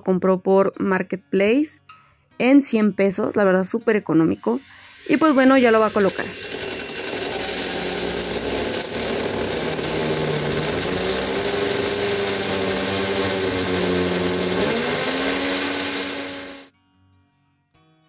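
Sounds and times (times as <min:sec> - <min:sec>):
electric drill boring into wall: 0:04.5 - 0:16.7.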